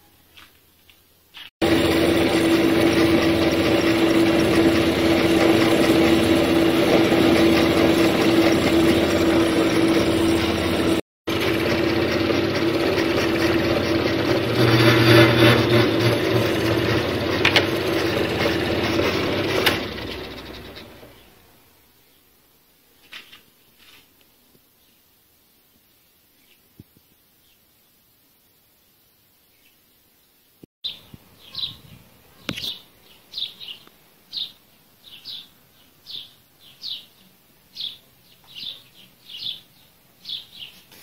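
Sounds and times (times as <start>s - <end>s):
metal lathe motor humming: 1.6s - 21.3s.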